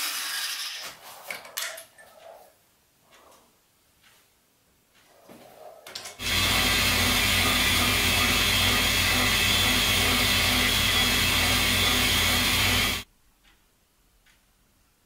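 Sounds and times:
metal lathe humming: 0:06.2 - 0:13.0.

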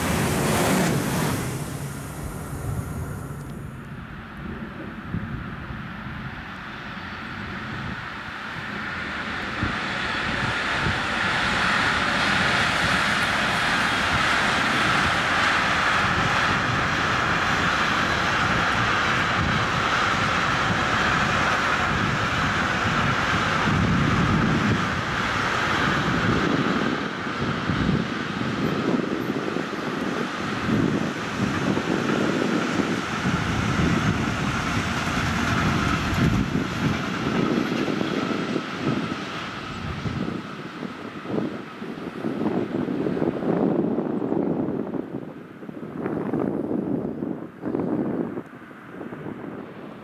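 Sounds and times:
low rumbles of passing wagons: 0:00.0 - 0:50.0
train wheels rushing on rail: 0:00.0 - 0:50.0.

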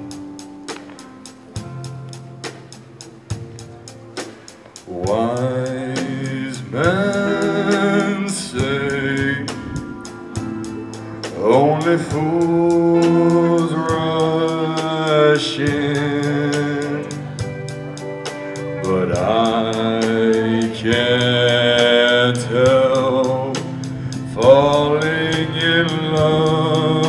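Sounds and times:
acoustic guitar: 0:00.0 - 0:27.0
drums: 0:00.0 - 0:27.0
keyboard: 0:00.0 - 0:27.0
man singing with vibrato: 0:04.9 - 0:17.6, 0:18.6 - 0:27.0.

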